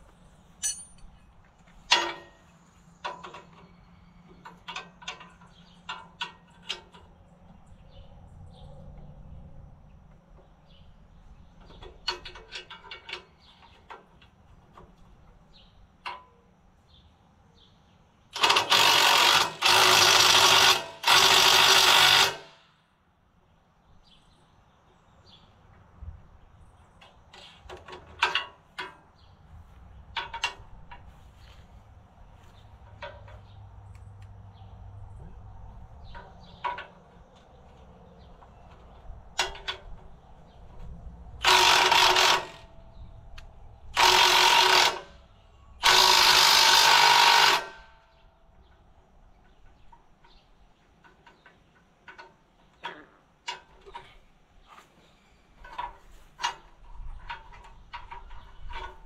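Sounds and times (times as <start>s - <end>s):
light metal clinks and knocks: 0.5s - 7.2s
impact wrench bursts: 18.3s - 22.7s, 41.4s - 42.6s, 43.9s - 45.2s, 45.8s - 48.0s.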